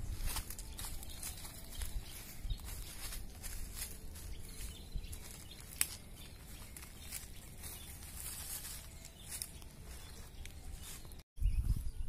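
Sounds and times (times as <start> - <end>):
footsteps crackling through dry leaves: 0.0 - 11.2
twig snapping: 5.6 - 6.1.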